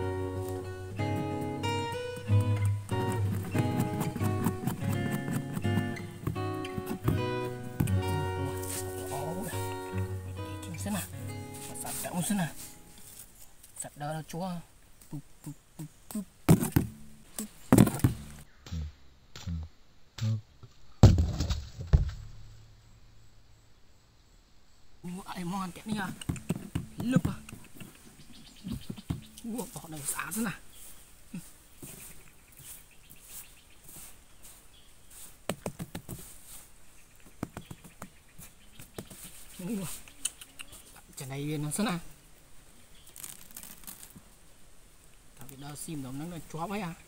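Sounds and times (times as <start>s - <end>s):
hands patting sandy soil: 0.0s - 14.1s, 25.1s - 42.1s, 43.0s - 44.4s.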